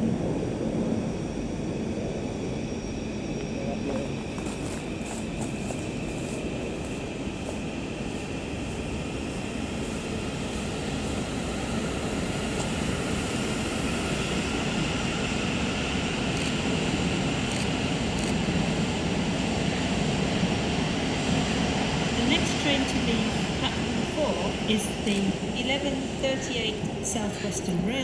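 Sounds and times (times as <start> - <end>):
electric train running: 15.5 - 19.1.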